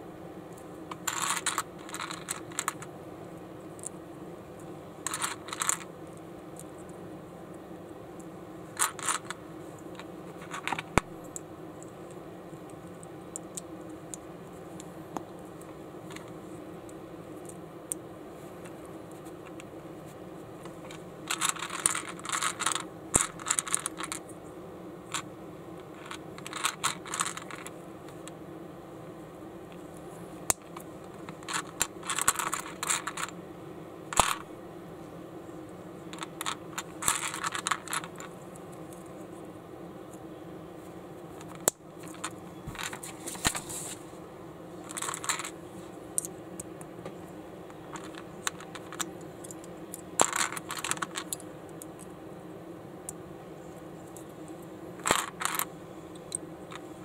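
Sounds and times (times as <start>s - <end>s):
plastic bricks clicking: 21.3s - 24.2s, 26.0s - 27.7s, 34.2s - 34.4s, 36.2s - 38.3s, 55.0s - 55.7s.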